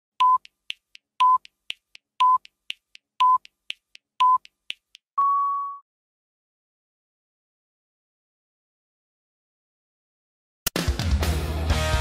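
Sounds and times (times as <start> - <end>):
short timer beeps: 0.2 - 0.6, 1.2 - 1.5, 2.2 - 2.5, 3.2 - 3.5, 4.2 - 4.5
quiet timer ticks: 0.2 - 5.0.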